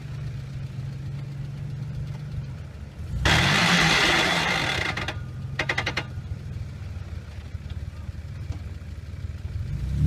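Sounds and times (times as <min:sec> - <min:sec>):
car engine idling and revving: 0:00.0 - 0:10.0
wheels spinning in loose dirt: 0:01.0 - 0:08.9.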